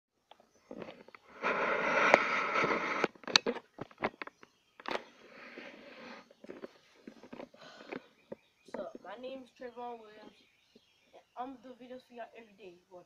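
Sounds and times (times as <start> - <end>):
phone microphone rubbing: 0.5 - 9.2.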